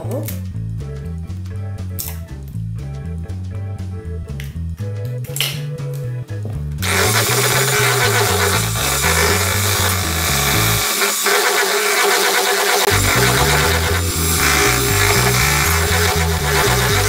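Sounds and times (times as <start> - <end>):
background music with bass: 0.0 - 11.0, 12.9 - 17.0
electric hand mixer humming: 6.8 - 17.0.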